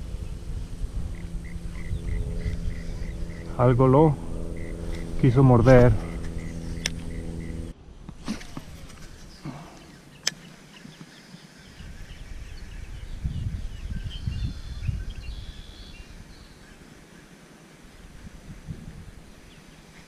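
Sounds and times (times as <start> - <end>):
low rumble: 0.0 - 8.0
faint bird chirps: 1.1 - 3.6
sharp clicks: 6.2 - 7.6.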